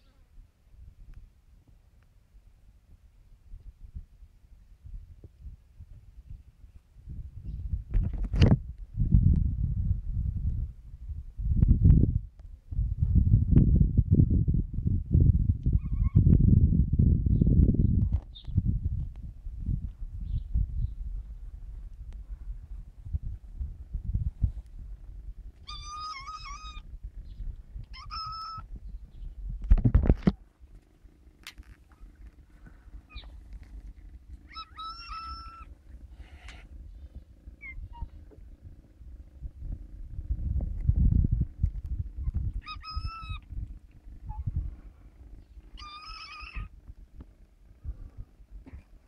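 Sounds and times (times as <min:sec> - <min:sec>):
low rumbling noise: 0:16.2 - 0:45.9, 0:46.6 - 0:49.0
kitten meowing: 0:25.6 - 0:26.8, 0:27.9 - 0:28.7, 0:34.5 - 0:35.7, 0:42.6 - 0:43.4, 0:45.8 - 0:46.7.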